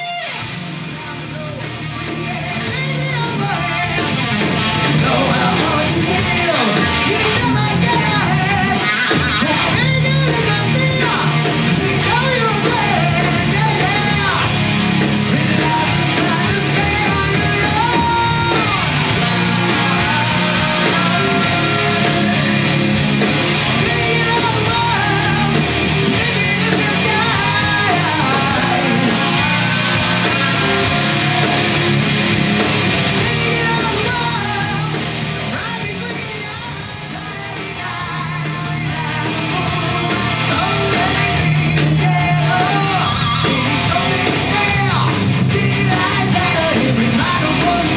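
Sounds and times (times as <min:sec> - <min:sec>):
person singing: 0:00.0 - 0:32.0, 0:33.0 - 0:47.9
distorted electric guitar: 0:00.0 - 0:47.9
drum kit: 0:00.0 - 0:47.9
electric bass: 0:00.0 - 0:47.9.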